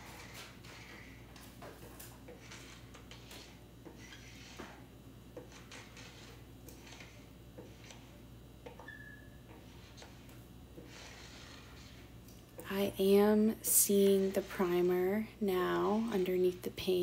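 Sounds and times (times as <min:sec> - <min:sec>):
paint scraper scraping wood: 0:02.3 - 0:04.8, 0:05.4 - 0:08.2, 0:09.5 - 0:12.2, 0:13.0 - 0:15.2.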